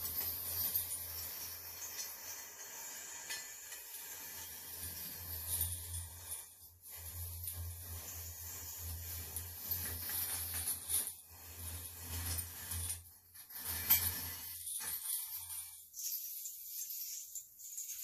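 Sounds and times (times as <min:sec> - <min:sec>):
ceramic rings clinking and rattling: 0:00.0 - 0:08.4, 0:13.6 - 0:18.0.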